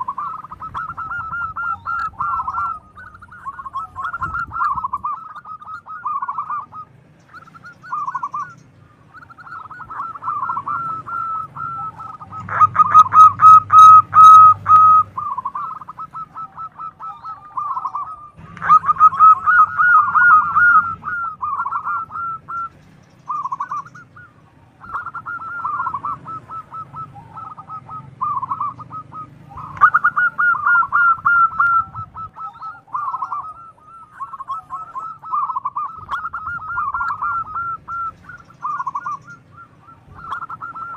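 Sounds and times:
dove cooing: 0.0s - 40.9s.

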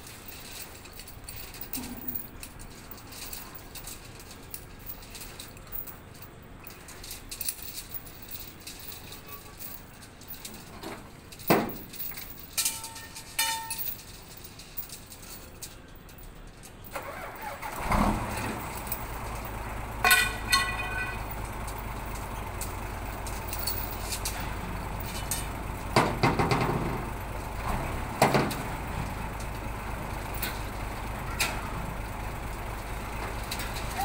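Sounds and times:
chains clanking on steel bars: 0.0s - 34.0s
heavy engine running: 16.8s - 34.0s.

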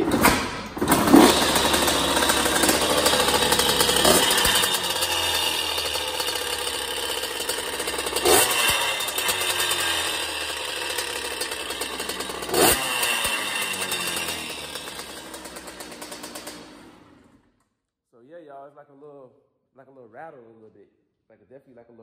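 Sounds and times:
loose exhaust rattling: 0.0s - 17.3s
two-stroke engine revving: 0.0s - 17.4s.

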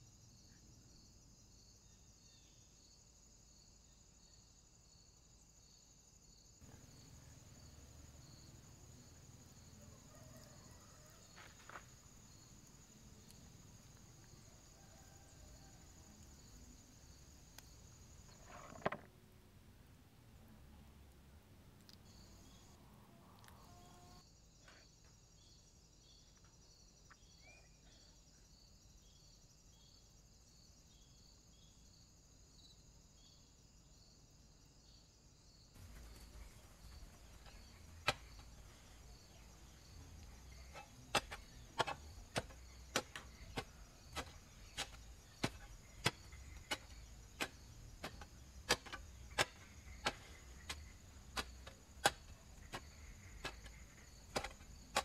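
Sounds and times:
insects chirping: 0.0s - 55.0s
spade chopping hard ground: 37.0s - 38.7s, 40.4s - 55.0s.

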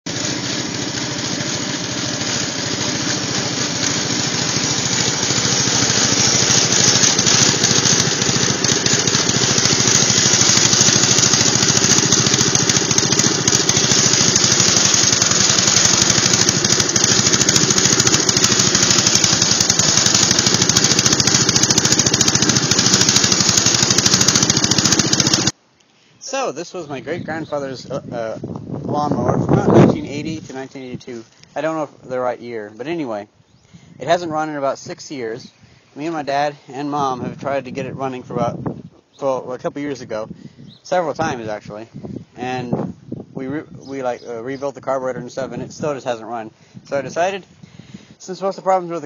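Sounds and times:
riding lawn mower engine running: 0.1s - 25.6s.

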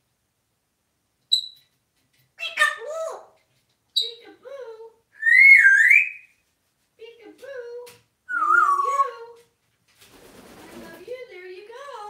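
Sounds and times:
parrot chirping: 1.3s - 1.7s, 2.4s - 4.2s, 5.2s - 6.4s, 8.3s - 9.2s.

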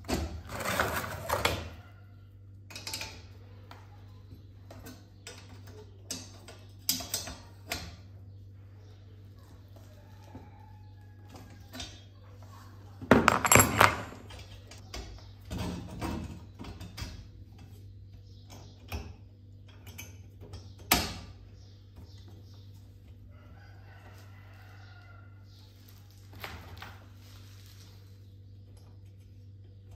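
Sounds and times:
metal clanks and knocks: 13.1s - 14.7s.

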